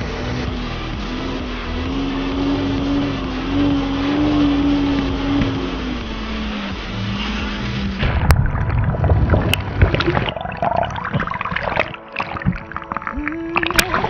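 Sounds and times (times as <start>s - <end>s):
personal watercraft engine running: 0.0s - 10.4s
water jets rushing: 5.0s - 14.0s
underwater bubbling and gurgling: 8.0s - 14.0s
underwater crackles: 8.0s - 14.0s.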